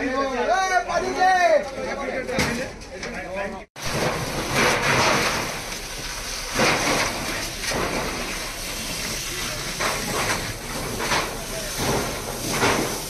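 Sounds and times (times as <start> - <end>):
fire hose water spraying: 3.8 - 13.0.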